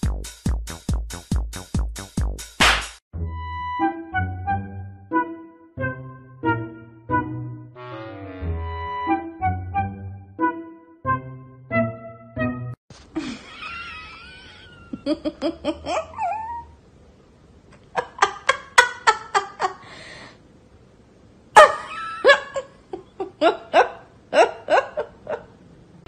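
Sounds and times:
person laughing: 13.1s - 16.7s, 17.8s - 19.9s, 21.6s - 25.6s.

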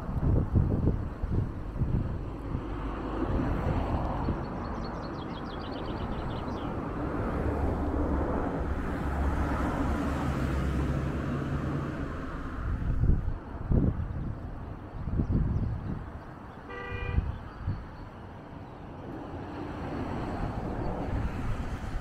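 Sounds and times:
street ambience: 0.0s - 22.0s.

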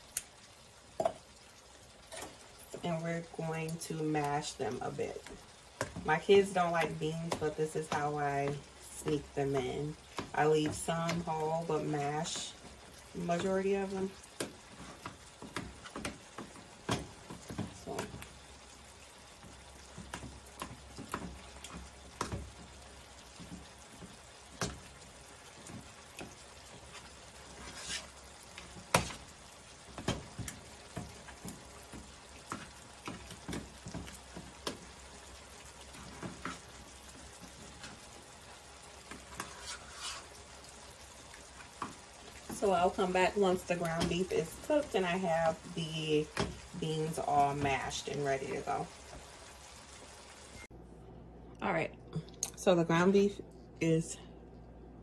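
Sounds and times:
beans being mashed squishing: 5.2s - 18.5s, 19.3s - 44.7s.

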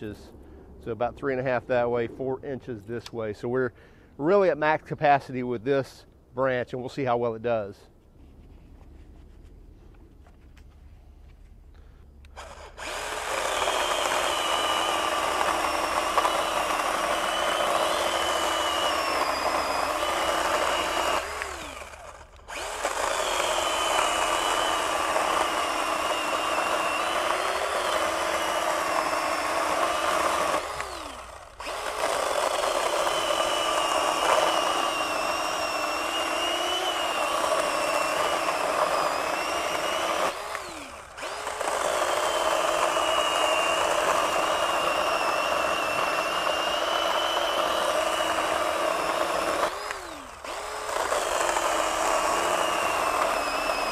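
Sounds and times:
electric chainsaw cutting wood: 12.2s - 53.9s.

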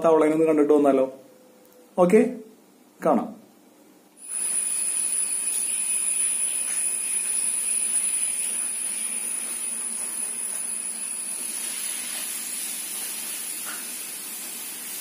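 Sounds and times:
high-pitched whine: 4.2s - 12.0s.

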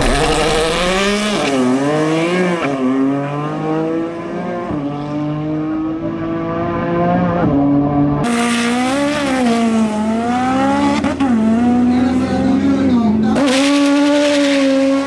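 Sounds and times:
drag car engine revving: 0.0s - 3.9s.

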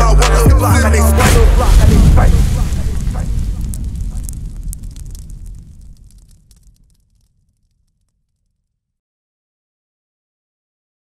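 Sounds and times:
low rumble with crackles: 1.2s - 8.8s.

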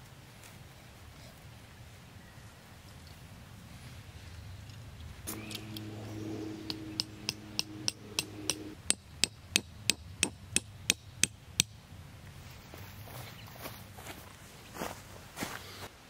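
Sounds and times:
low steady hum: 3.4s - 15.3s
hammer striking metal tent stake: 5.3s - 11.8s.

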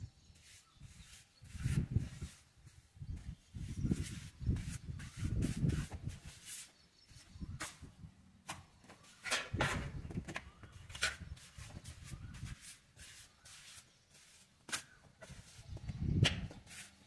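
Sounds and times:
trowel scraping mortar: 10.9s - 15.6s, 16.6s - 17.0s.

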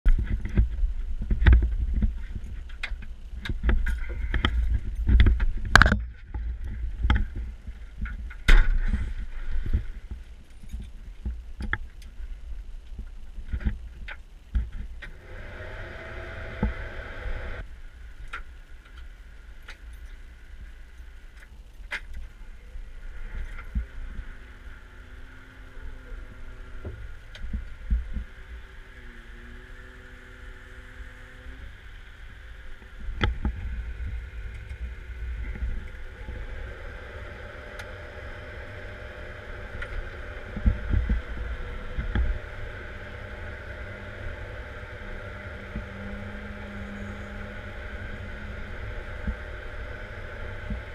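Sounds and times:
faint whining tones: 0.1s - 50.9s
diesel engine rumbling: 15.1s - 18.0s, 22.3s - 50.9s.

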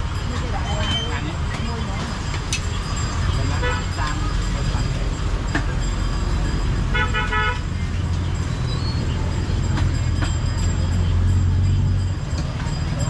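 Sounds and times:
low rumble of traffic: 0.0s - 13.0s
vehicle horn honk: 6.9s - 7.7s.

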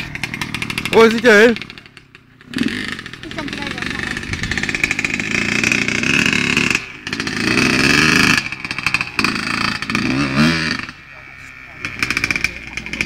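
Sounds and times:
motorbike engine revving: 0.0s - 13.0s.

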